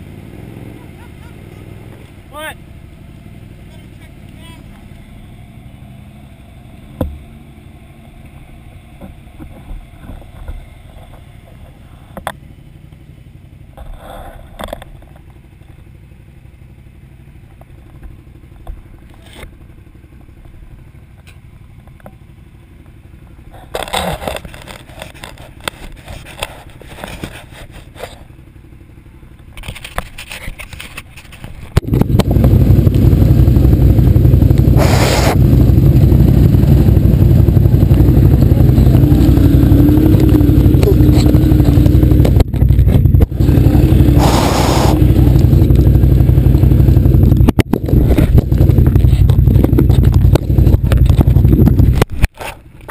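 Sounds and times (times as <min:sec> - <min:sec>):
atv engine running: 0:00.0 - 0:52.9
scrapes and knocks: 0:23.5 - 0:28.2.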